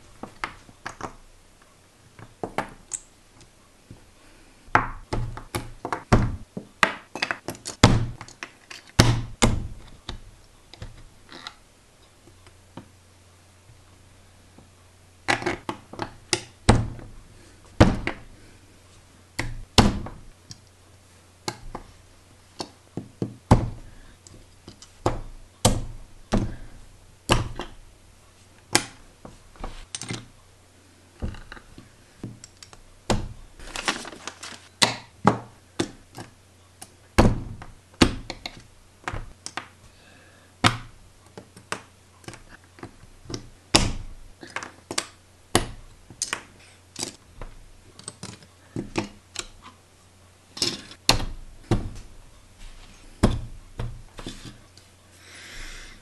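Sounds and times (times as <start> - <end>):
paper rustling: 33.6 - 34.7.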